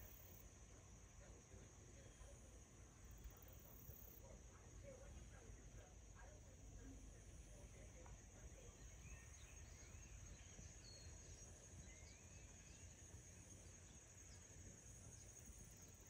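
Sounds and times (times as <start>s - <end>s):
high-pitched insect chorus: 0.0s - 16.0s
faint bird chirps: 8.5s - 16.0s.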